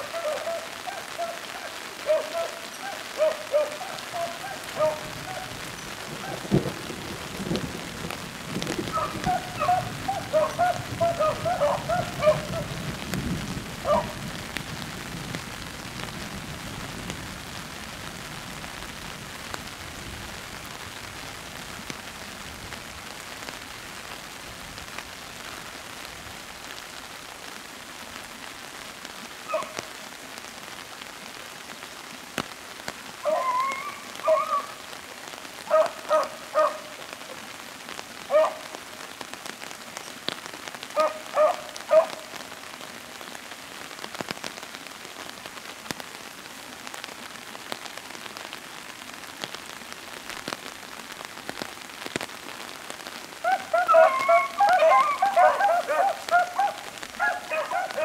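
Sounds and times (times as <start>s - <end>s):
dogs barking: 0.0s - 5.6s, 8.9s - 12.7s, 13.8s - 14.2s, 29.5s - 29.8s, 33.2s - 34.7s, 35.7s - 36.9s, 38.3s - 38.7s, 41.0s - 42.3s, 53.4s - 58.0s
rain falling on foliage: 0.0s - 58.0s.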